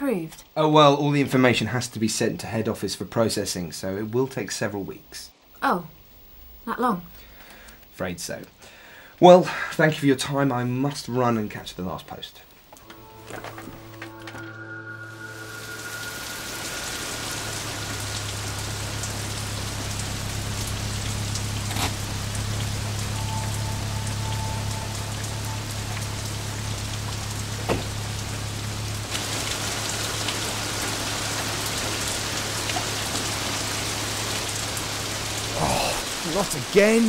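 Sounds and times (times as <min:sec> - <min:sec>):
rain falling: 0:00.0 - 0:37.0
low hum: 0:12.8 - 0:35.6.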